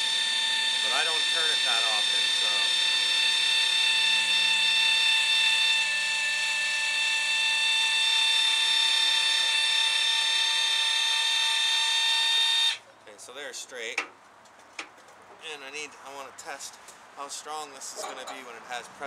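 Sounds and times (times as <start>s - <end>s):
electric actuator motor whine: 0.0s - 12.8s.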